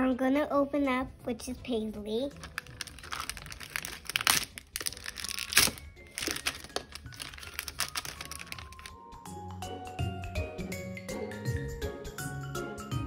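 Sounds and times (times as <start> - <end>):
plastic bag crinkling: 2.4 - 9.0.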